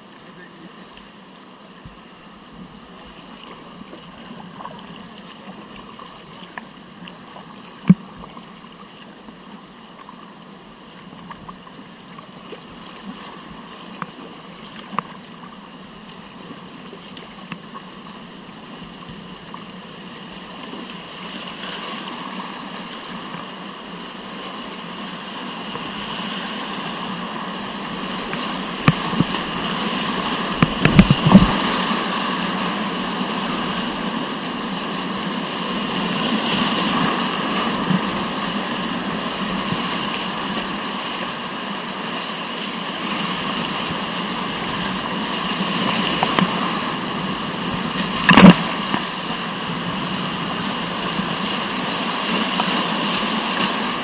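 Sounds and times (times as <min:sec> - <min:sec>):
river rapids rushing: 0:19.8 - 0:54.0.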